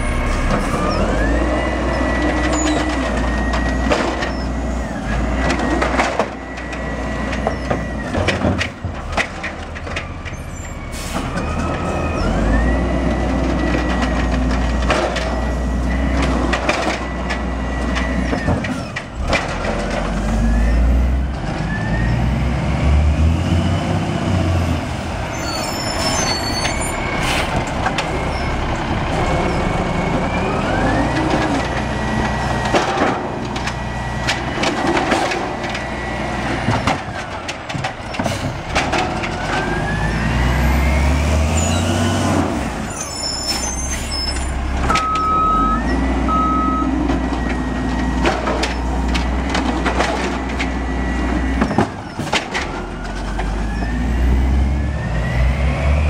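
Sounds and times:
diesel engine revving: 0.0 - 56.0
carts banging against hopper: 5.1 - 10.3, 13.2 - 20.4, 26.0 - 40.0, 46.6 - 53.8.

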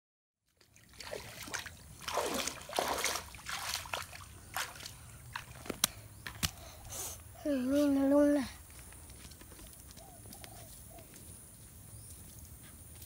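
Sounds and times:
feet splashing in shallow water: 0.5 - 6.6.

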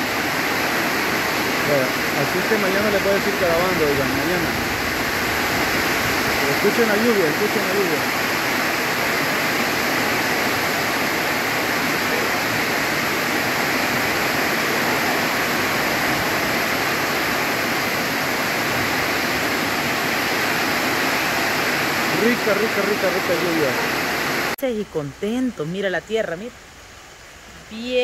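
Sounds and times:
heavy rain pouring: 0.0 - 24.6.

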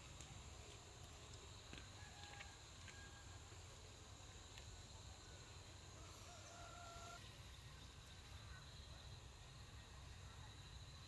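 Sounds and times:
faint high-pitched hum: 0.0 - 11.0.

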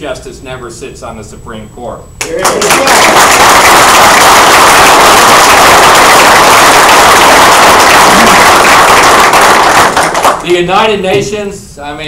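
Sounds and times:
audience applauding: 2.2 - 10.4.

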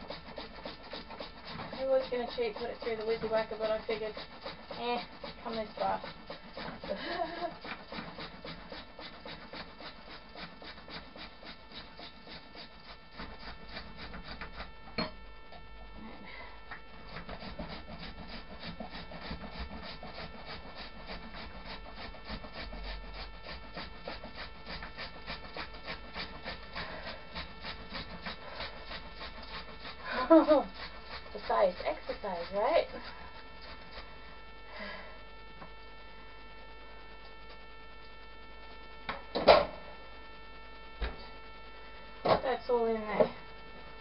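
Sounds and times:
carrot scraped on metal grater: 0.0 - 14.8, 17.0 - 34.1.

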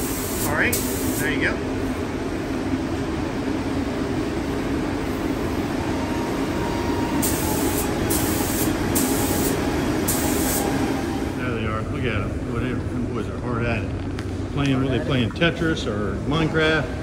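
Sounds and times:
spray gun hissing: 0.0 - 1.2, 7.2 - 10.9.

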